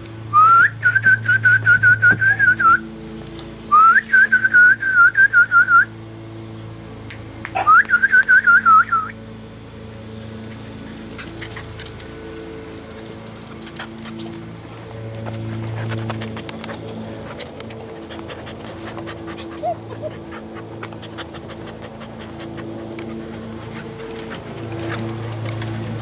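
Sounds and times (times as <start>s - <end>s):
person whistling: 0.3s - 2.8s, 3.7s - 5.9s, 7.6s - 9.2s.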